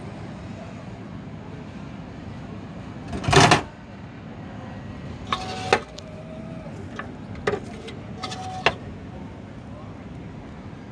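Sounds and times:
steady background noise: 0.0s - 10.9s
vending machine clicks and clunks: 3.1s - 3.7s, 5.3s - 6.0s, 6.9s - 8.9s.

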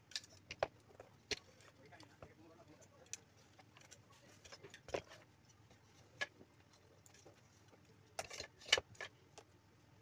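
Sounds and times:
plastic fans clicking and knocking: 0.0s - 9.5s.

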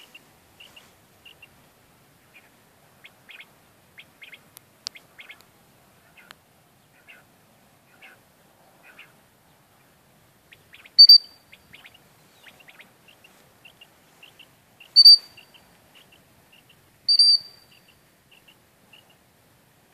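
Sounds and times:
faint birds chirping: 0.0s - 19.9s
shrill dog whistle blasts: 15.0s - 15.2s, 17.1s - 17.5s.

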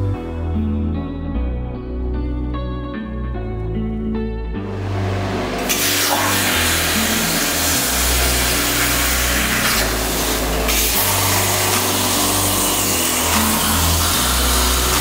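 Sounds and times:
background music with bass: 0.0s - 15.0s
plasma torch cutting steel hiss: 5.6s - 15.0s.

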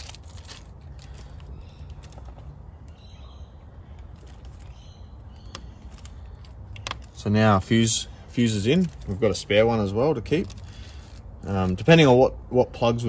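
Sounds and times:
bird chirping: 1.1s - 6.8s.

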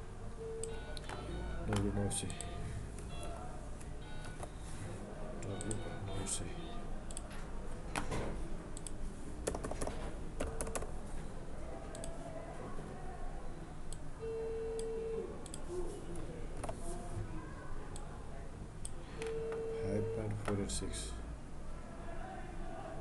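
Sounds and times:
low background hum: 0.0s - 23.0s
keyboard keystrokes: 8.8s - 10.9s.

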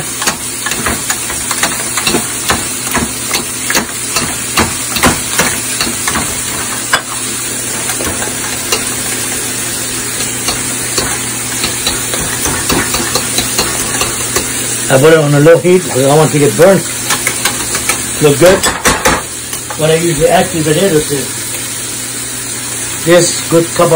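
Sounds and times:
potato masher knocking against pot: 0.0s - 7.2s, 10.2s - 14.6s
steak sizzling in a pan: 0.0s - 23.9s.

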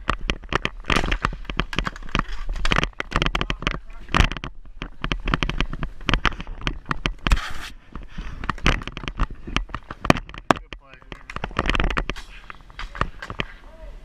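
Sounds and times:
hockey sticks clacking: 0.0s - 7.7s, 8.4s - 13.7s
stick scraping: 6.4s - 7.8s.

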